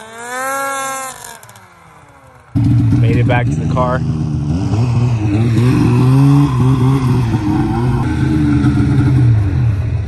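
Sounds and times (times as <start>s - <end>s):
snowmobile engine idling: 0.0s - 6.4s.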